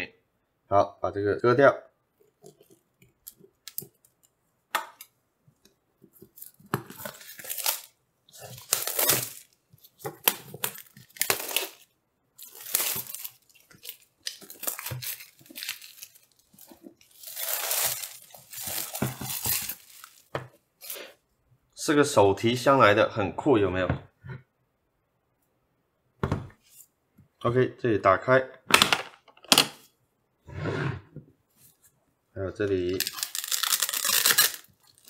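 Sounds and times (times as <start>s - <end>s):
cardboard tearing and scraping: 6.4s - 20.3s, 33.0s - 35.0s.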